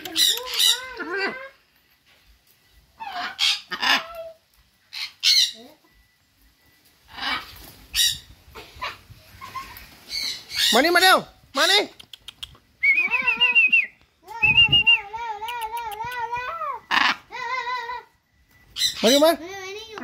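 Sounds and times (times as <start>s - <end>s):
macaw calling: 9.5s - 17.7s, 18.7s - 20.0s.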